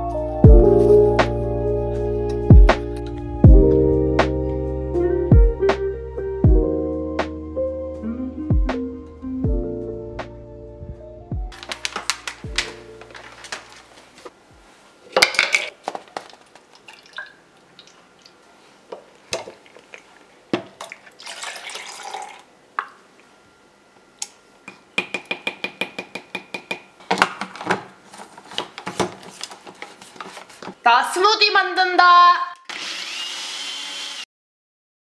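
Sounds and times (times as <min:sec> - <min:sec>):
liquid pouring into plastic cup: 0:16.7 - 0:18.3, 0:19.5 - 0:22.5.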